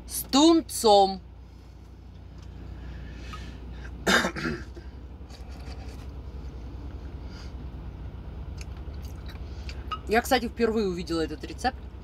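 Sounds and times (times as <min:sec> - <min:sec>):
low steady hum: 0:00.0 - 0:12.0
woman coughing: 0:04.0 - 0:04.8.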